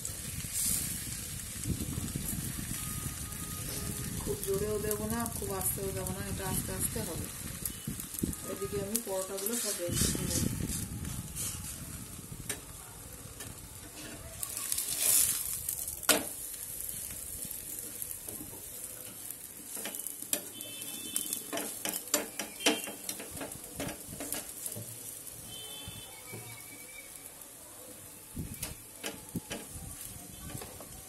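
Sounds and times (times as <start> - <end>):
flatbread sizzling in pan: 0.0 - 31.0
spatula clicking and tapping: 17.8 - 25.0.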